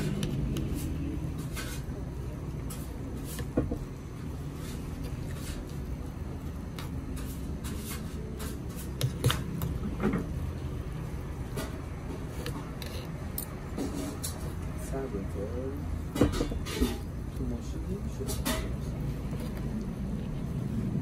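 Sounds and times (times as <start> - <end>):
low background hum: 0.0 - 21.0
cutlery clinking on metal bowls: 16.1 - 17.1, 18.1 - 18.9.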